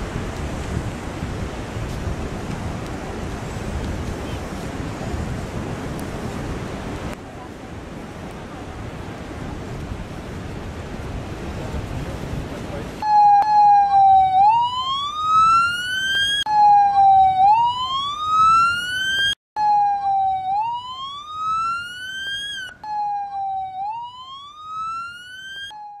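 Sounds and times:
emergency vehicle siren: 13.0s - 26.0s.

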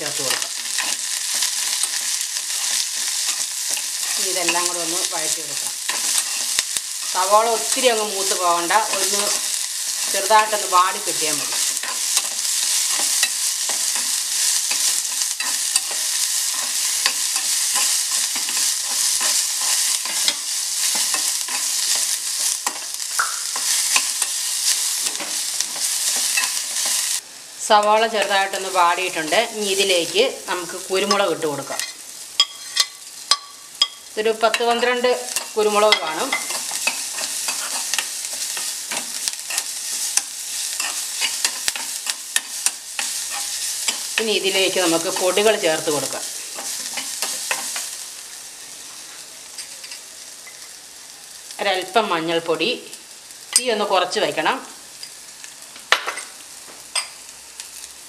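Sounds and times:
onions sizzling in oil: 0.0s - 58.0s
spatula scraping and tapping pan: 11.5s - 24.4s, 31.0s - 44.3s, 46.5s - 48.0s.

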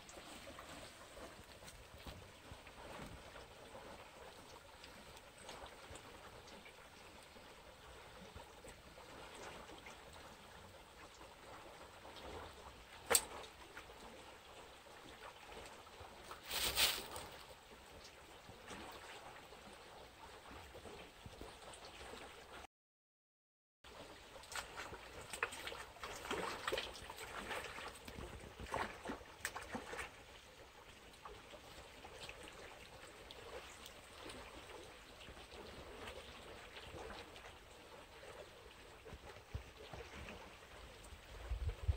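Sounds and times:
water flowing over stones: 0.0s - 22.6s, 23.9s - 41.9s.

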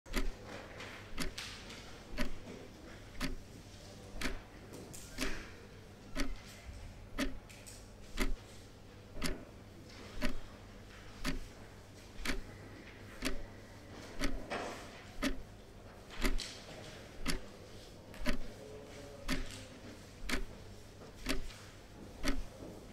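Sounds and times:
clock ticking: 0.1s - 0.4s, 1.2s - 1.4s, 2.1s - 2.4s, 3.1s - 3.5s, 4.2s - 4.4s, 6.1s - 6.4s, 7.2s - 7.4s, 8.2s - 8.4s, 9.2s - 9.4s, 10.2s - 10.4s, 11.2s - 11.5s, 12.2s - 12.5s, 13.2s - 13.4s, 14.2s - 14.4s, 15.2s - 15.5s, 16.2s - 16.4s, 17.2s - 17.5s, 18.2s - 18.5s, 19.2s - 19.6s, 20.2s - 20.6s, 21.2s - 21.5s, 22.2s - 22.5s.

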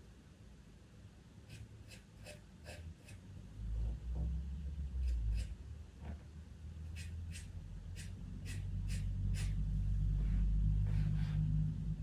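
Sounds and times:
pencil scratching on paper: 1.5s - 3.2s, 5.0s - 5.6s, 6.9s - 9.6s
steady low rumble: 3.3s - 12.0s.

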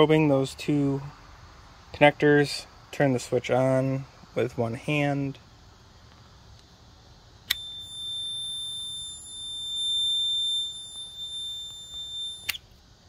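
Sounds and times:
multimeter continuity beep: 7.5s - 12.6s.

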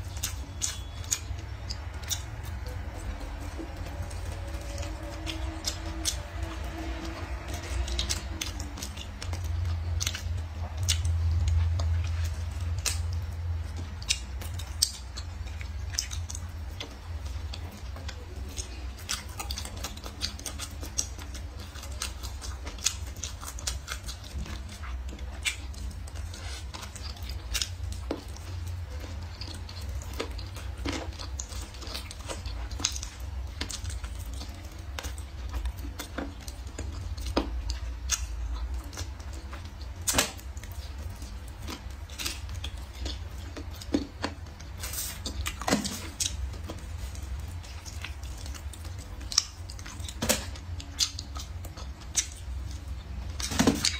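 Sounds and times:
person chewing food: 0.0s - 53.9s.

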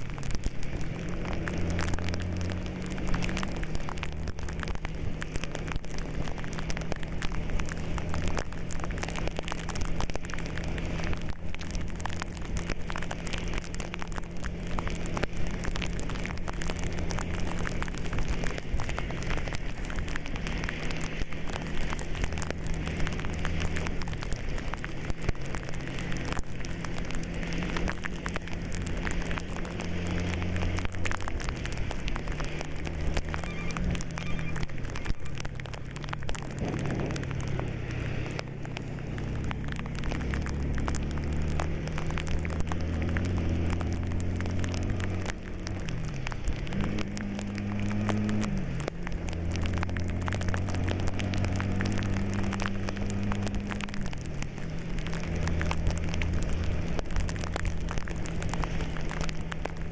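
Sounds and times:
rain on windshield and roof: 0.0s - 59.9s
tyres on wet road: 0.0s - 59.9s
vehicle engine hum: 0.0s - 59.9s.

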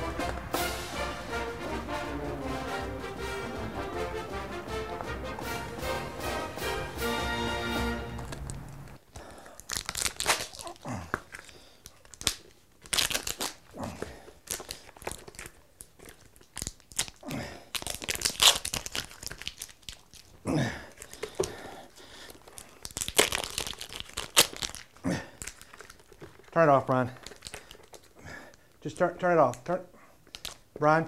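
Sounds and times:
decals peeling off plastic: 8.2s - 13.7s, 14.3s - 21.6s, 22.3s - 26.6s, 27.2s - 28.2s, 30.2s - 30.7s.

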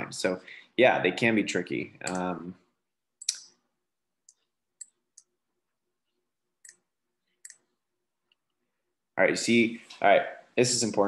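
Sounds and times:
computer mouse clicks: 7.4s - 7.7s.

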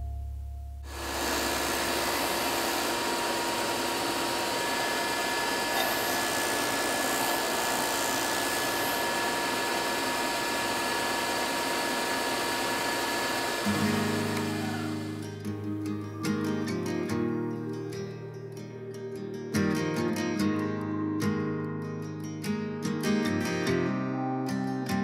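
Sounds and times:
disc sander grinding wood: 0.9s - 15.4s.

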